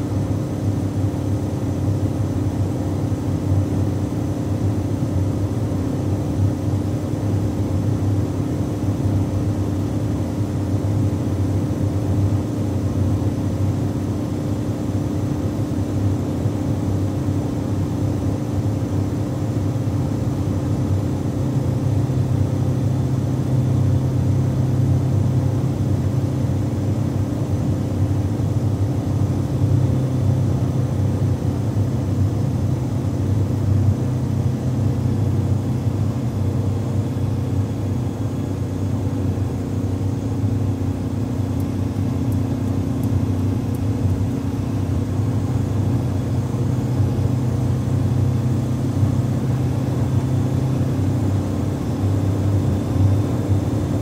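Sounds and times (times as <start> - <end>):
car engine drone: 14.4 - 54.0.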